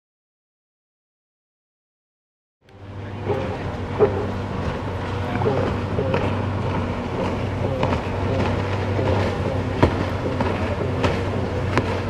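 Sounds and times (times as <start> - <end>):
jet ski engine droning: 2.6 - 12.0.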